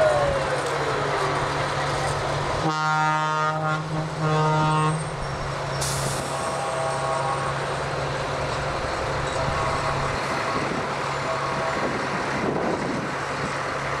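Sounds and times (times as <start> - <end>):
trucks driving past: 0.0 - 14.0
distant horn tones: 2.6 - 5.2, 6.3 - 7.7, 9.3 - 12.0.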